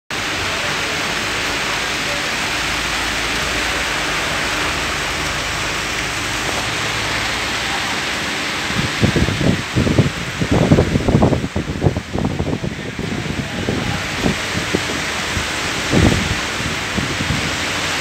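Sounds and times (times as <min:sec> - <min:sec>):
rain on a metal roof: 0:00.1 - 0:18.0.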